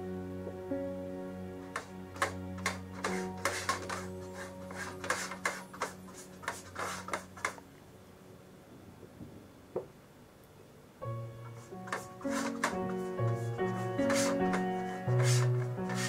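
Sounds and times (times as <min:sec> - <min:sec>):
background music: 0:00.0 - 0:08.6, 0:11.0 - 0:16.0
brush rubbing metal tin: 0:02.2 - 0:07.6, 0:11.6 - 0:16.0.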